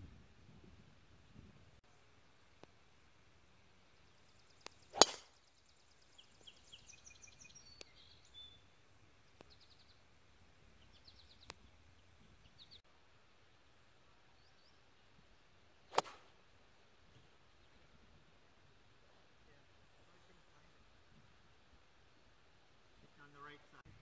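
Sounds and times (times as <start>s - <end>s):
birds chirping: 1.9s - 12.8s
golf driver hitting ball: 4.9s - 5.3s, 15.9s - 16.3s.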